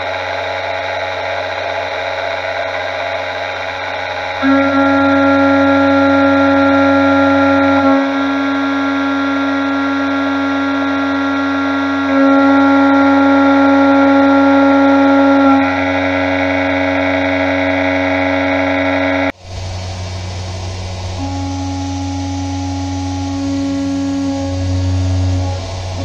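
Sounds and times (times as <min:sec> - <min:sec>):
milling machine high whine: 0:00.0 - 0:26.0.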